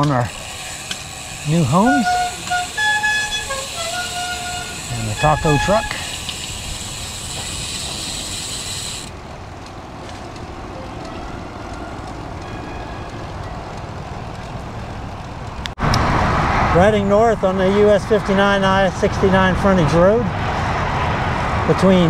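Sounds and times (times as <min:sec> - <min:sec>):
high hiss: 0:00.0 - 0:09.1
bicycle tyre and road noise: 0:00.0 - 0:22.0.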